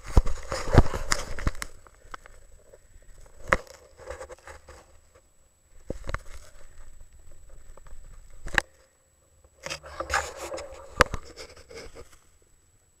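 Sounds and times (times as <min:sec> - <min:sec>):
gloves rubbing against camera: 0:00.0 - 0:02.5, 0:09.6 - 0:12.3.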